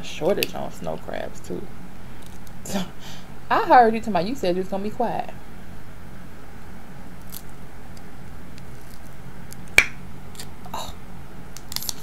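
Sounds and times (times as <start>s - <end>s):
crab shell cracking: 7.2s - 10.6s, 11.6s - 12.0s.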